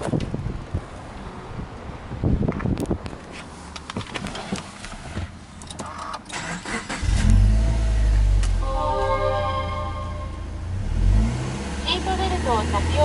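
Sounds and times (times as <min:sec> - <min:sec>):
car engine starting and idling: 0:03.5 - 0:13.0.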